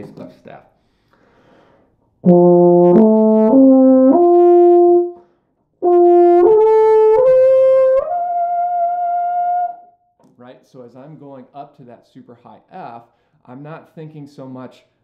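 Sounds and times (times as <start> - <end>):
player taking a breath: 0.8 - 2.0, 13.1 - 13.4.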